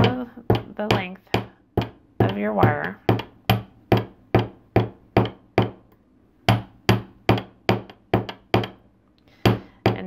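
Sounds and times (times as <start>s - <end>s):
hammer tapping metal wire: 0.0s - 8.8s.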